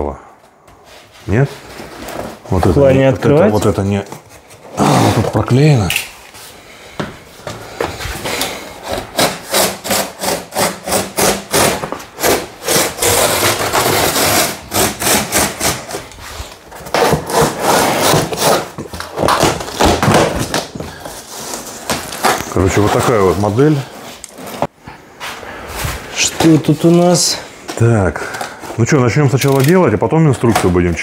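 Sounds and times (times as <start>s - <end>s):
knife slicing cardboard: 16.7s - 20.6s.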